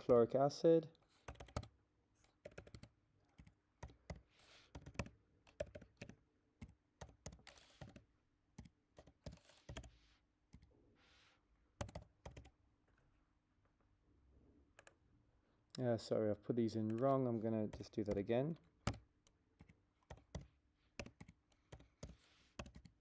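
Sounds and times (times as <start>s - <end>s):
keyboard keystrokes clicking: 2.4s - 8.0s, 11.8s - 12.5s, 16.8s - 23.0s.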